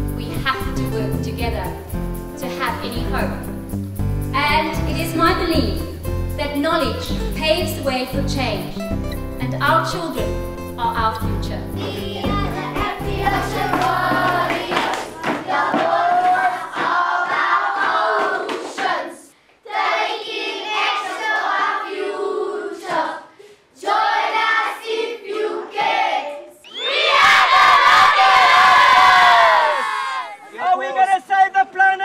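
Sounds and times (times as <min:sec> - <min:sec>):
hand claps: 0:11.8 - 0:19.0
children chanting in unison: 0:11.8 - 0:30.4
children shouting: 0:26.6 - 0:30.6.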